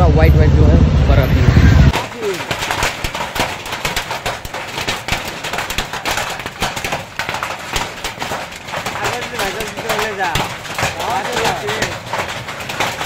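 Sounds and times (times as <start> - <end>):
hailstones pelting down: 1.9 - 13.0.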